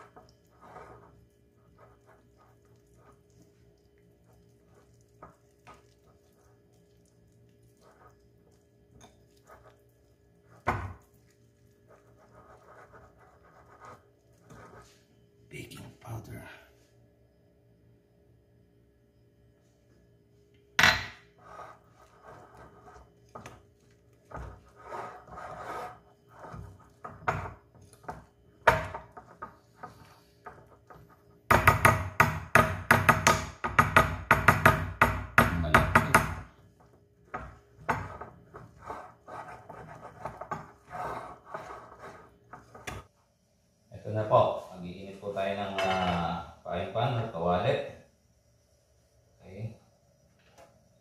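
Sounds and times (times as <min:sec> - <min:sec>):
whisk beating batter in glass bowl: 0:00.0 - 0:15.0, 0:21.5 - 0:31.3, 0:37.4 - 0:43.0.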